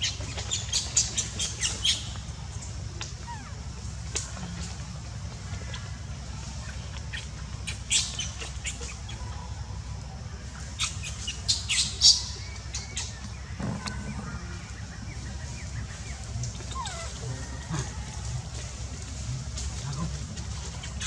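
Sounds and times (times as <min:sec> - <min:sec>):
animal chirps and squeaks: 0:16.6 - 0:17.8.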